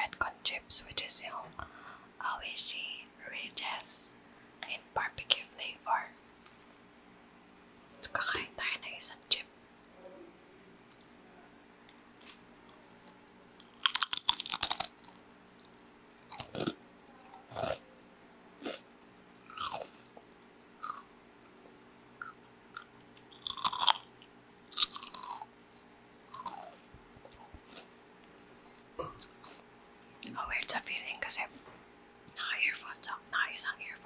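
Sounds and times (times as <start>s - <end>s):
potato chip crunching: 13.6s - 15.2s, 16.2s - 16.8s, 17.5s - 17.8s, 19.4s - 20.0s, 20.8s - 21.0s, 22.2s - 25.4s, 26.3s - 26.8s.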